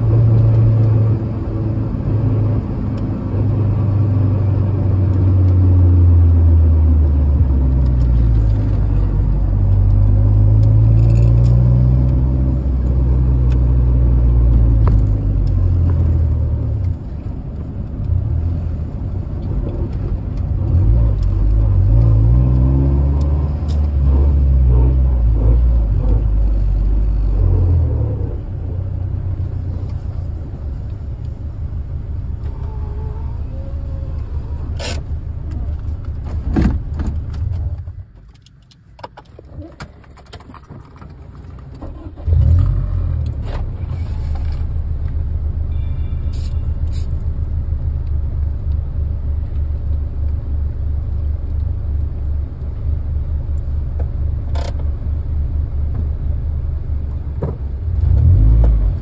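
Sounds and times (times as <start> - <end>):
car engine from inside cabin: 0.0 - 59.0.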